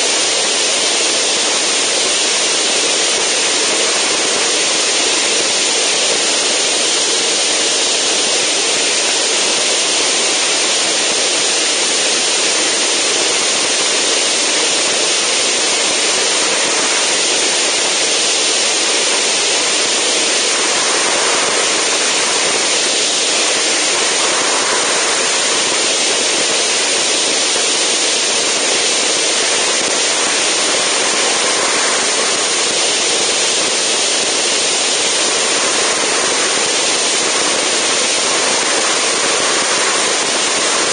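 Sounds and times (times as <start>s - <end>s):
wind rushing over microphone: 13.3s - 40.9s.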